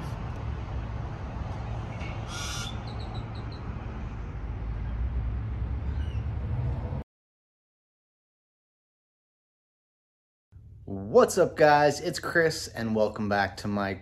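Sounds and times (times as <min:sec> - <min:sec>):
low outdoor rumble: 0:00.0 - 0:07.0, 0:10.6 - 0:14.0
bird chirping: 0:01.9 - 0:03.7, 0:05.8 - 0:06.3.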